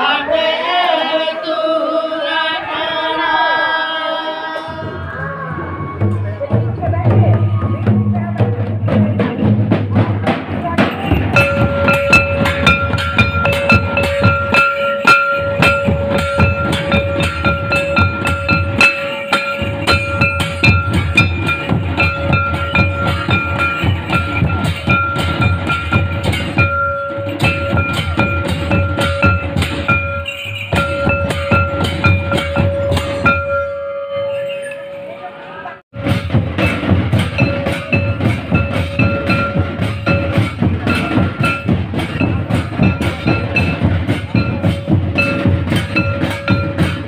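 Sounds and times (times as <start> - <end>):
kettle and barrel drums beaten: 5.8 - 35.1, 35.9 - 47.0
metal cymbal: 10.9 - 35.1, 36.0 - 47.0.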